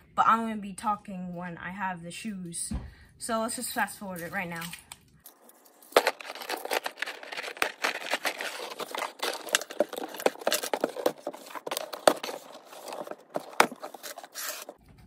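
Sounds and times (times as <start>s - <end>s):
tape peeling: 5.6s - 14.8s
cardboard scraping and crinkling: 5.8s - 14.8s.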